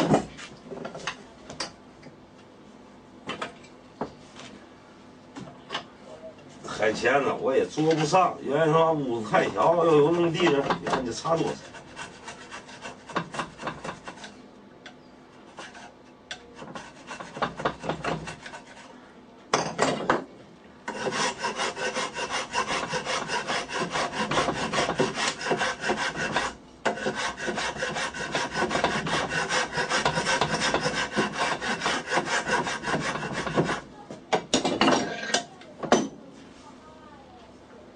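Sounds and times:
metal file rasping on wood: 9.4 - 14.4, 15.3 - 18.9, 20.9 - 33.9.

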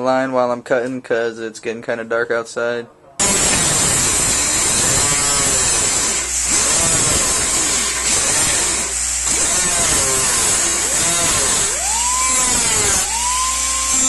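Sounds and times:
cut-off wheel grinding metal: 3.2 - 14.0
cut-off wheel whining: 3.2 - 14.0.

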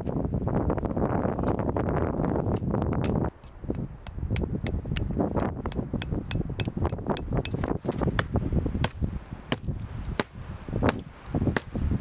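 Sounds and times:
hatchet chopping wood: 2.5 - 11.8.

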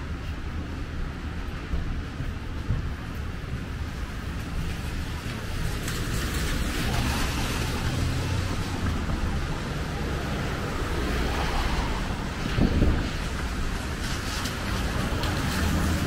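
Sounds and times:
engines humming: 0.0 - 16.0
tyres hissing on wet road: 0.0 - 16.0
car passing by: 4.6 - 16.0.

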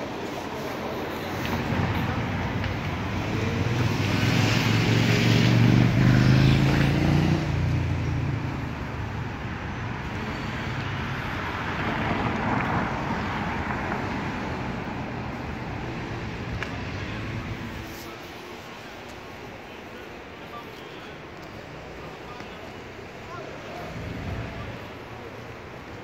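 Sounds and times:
city traffic noise: 0.0 - 26.0
vehicle engine passing by: 3.5 - 8.7.

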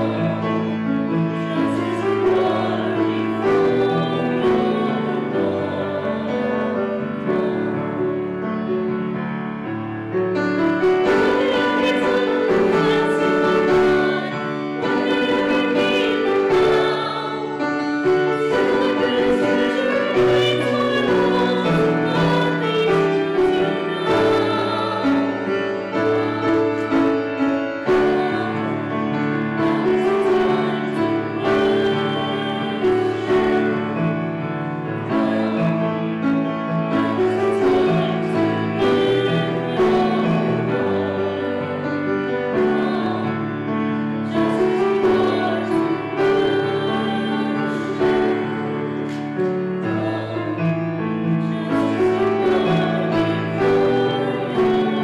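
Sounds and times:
choir singing: 0.0 - 55.0
grand piano: 0.0 - 55.0.

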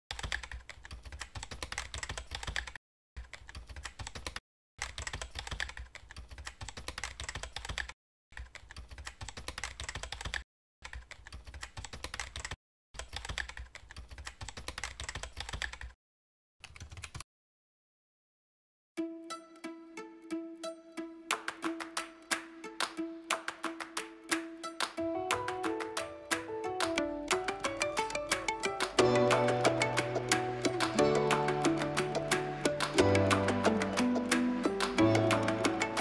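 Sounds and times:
keyboard typing clicks: 0.1 - 16.0, 16.6 - 17.2.

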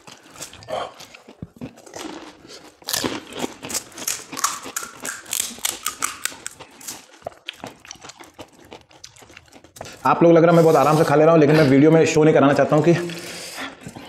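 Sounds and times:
crisp shells cracking and crunching: 0.0 - 9.8
chewing: 0.0 - 11.7, 12.5 - 14.0.

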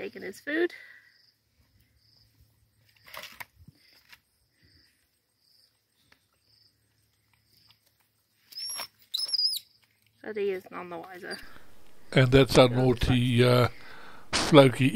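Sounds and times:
faint high insect chirps: 0.9 - 10.2
brief rustle: 2.8 - 4.2.

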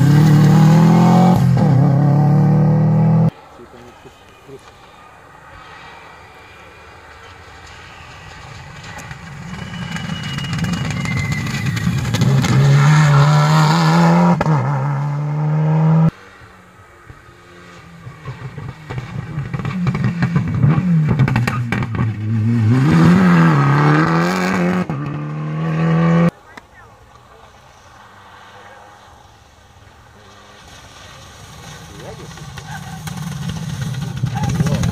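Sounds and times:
rally car engine revving: 0.0 - 3.3, 9.0 - 16.4, 17.1 - 26.6, 30.2 - 34.9.

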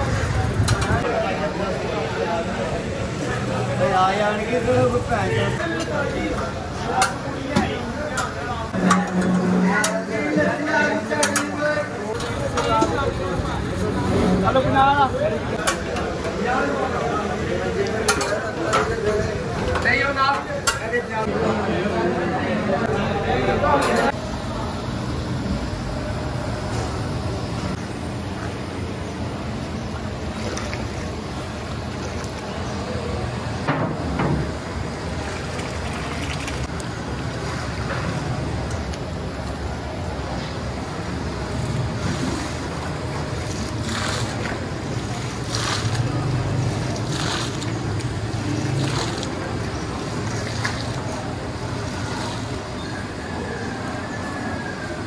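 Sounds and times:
stew sloshing in metal pot: 42.0 - 52.6.

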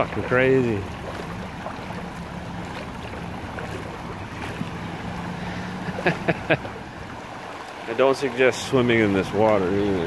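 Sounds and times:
water rushing across street: 0.0 - 10.0.

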